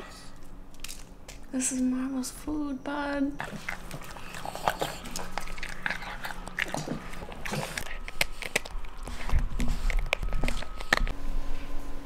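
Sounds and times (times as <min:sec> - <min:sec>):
dog eating and chewing: 0:03.2 - 0:11.2.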